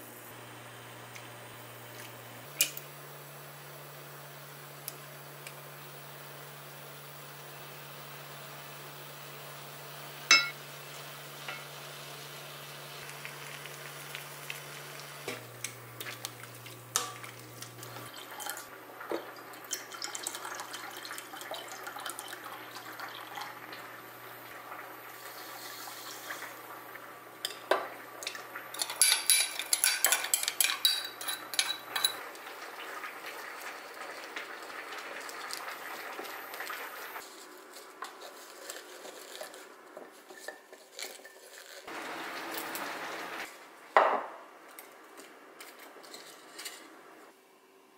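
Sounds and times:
liquid pouring: 0:17.8 - 0:26.6
utensils scraping a pan: 0:28.7 - 0:32.2, 0:37.2 - 0:41.9, 0:45.6 - 0:46.9.

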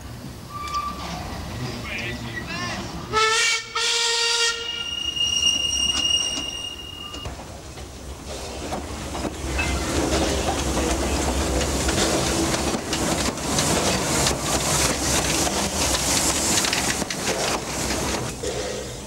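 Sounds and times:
steam locomotive rumble: 0:00.0 - 0:19.0
steam hiss: 0:11.6 - 0:19.0.

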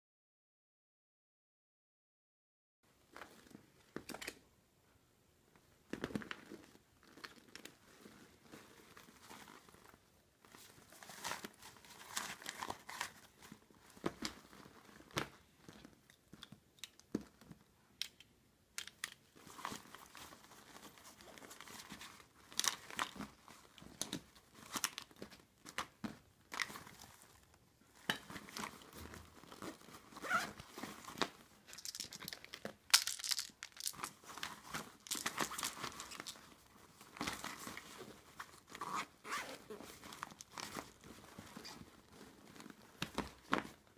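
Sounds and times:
handbag rustling and crinkling: 0:05.9 - 0:16.4, 0:19.3 - 0:43.9.

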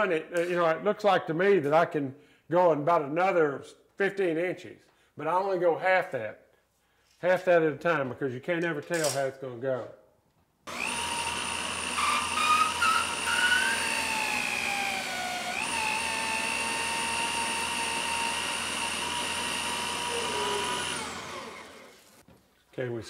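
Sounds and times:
electric drill whining: 0:10.7 - 0:22.2.

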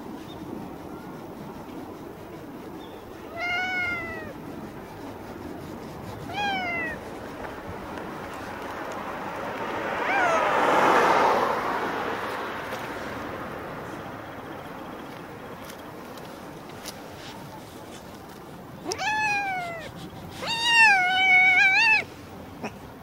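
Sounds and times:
rustling noise: 0:03.1 - 0:09.6, 0:15.0 - 0:21.4
cat meowing: 0:03.3 - 0:04.4, 0:06.3 - 0:07.0, 0:10.0 - 0:10.5, 0:18.8 - 0:22.8.

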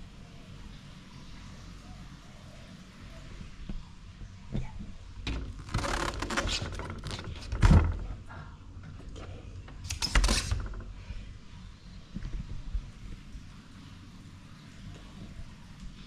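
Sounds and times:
rustling and handling: 0:04.3 - 0:11.4
fridge door thump: 0:05.3 - 0:08.2.

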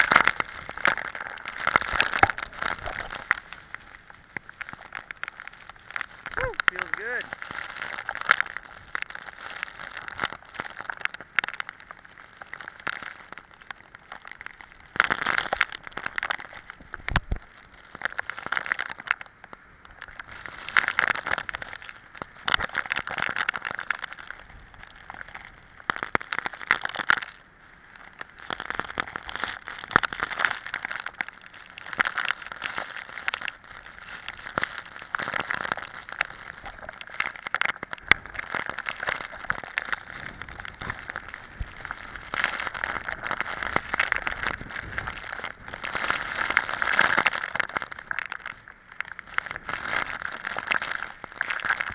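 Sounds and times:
wind-driven rain hitting camera: 0:00.0 - 0:11.7, 0:15.6 - 0:17.5, 0:37.8 - 0:47.3.

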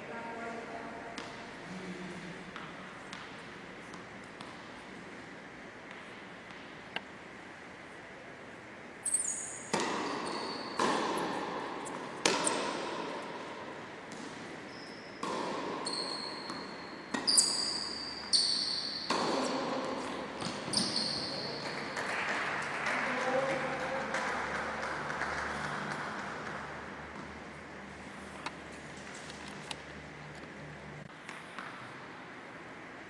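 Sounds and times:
tennis ball bouncing: 0:02.5 - 0:04.8, 0:09.6 - 0:21.7
shoes squeaking on court floor: 0:09.0 - 0:12.9, 0:14.1 - 0:21.7
tennis racket strikes: 0:09.6 - 0:13.4, 0:18.8 - 0:21.0.

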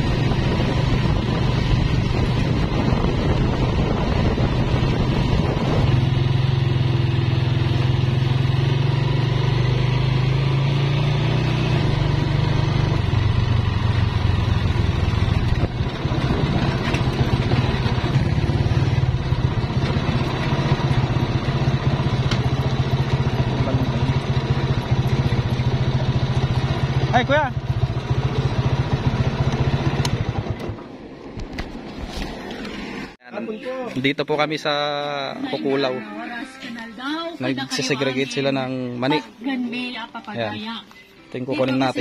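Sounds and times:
motorcycle engine running: 0:00.0 - 0:32.0.

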